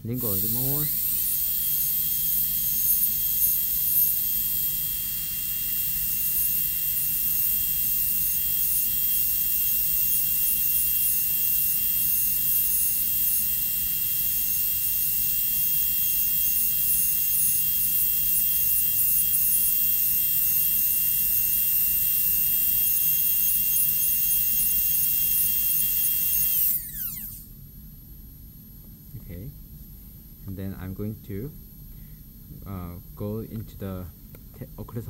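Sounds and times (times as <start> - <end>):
dental drill whining: 0.0 - 27.5.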